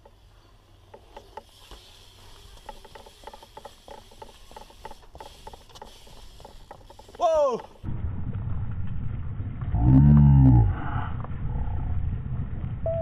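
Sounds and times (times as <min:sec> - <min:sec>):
bike hub freewheel ratcheting: 0:00.0 - 0:07.9
light hiss: 0:00.0 - 0:07.9.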